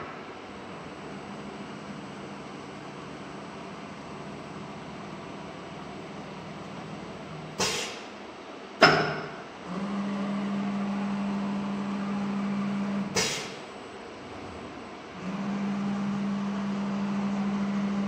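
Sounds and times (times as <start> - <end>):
sharp air blasts: 7.6 - 8.2, 13.1 - 13.7
motor hum: 9.6 - 13.2, 14.2 - 18.0.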